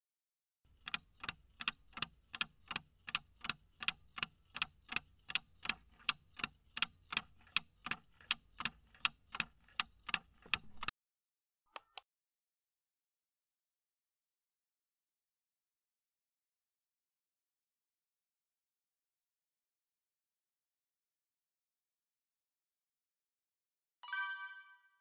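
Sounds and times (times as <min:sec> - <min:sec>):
clock-style timer ticking: 0:00.7 - 0:10.9.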